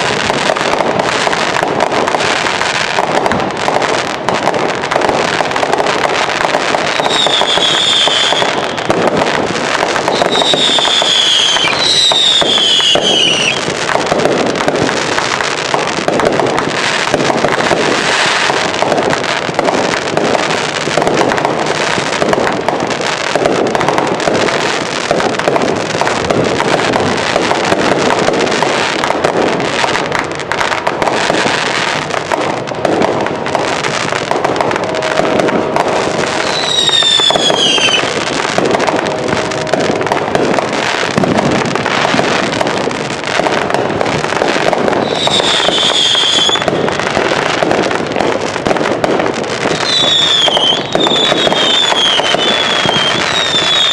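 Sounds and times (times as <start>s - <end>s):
fireworks bangs and crackling: 0.0s - 53.9s
fireworks whistling: 0.0s - 53.9s.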